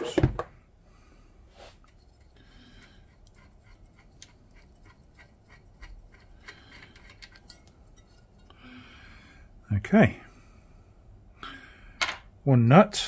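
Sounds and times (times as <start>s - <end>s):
light metallic clicks and scrapes: 1.7s - 8.6s.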